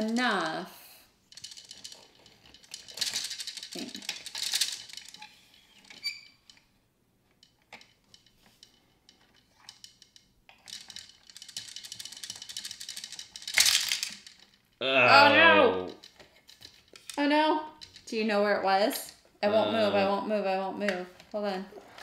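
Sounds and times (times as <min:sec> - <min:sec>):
plastic gears clicking: 0:01.3 - 0:06.6, 0:07.3 - 0:14.6.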